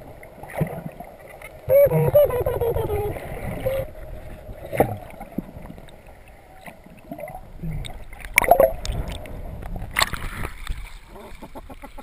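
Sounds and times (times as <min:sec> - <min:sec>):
water splashing: 0:00.0 - 0:12.0
muffled underwater gurgles: 0:01.6 - 0:05.8.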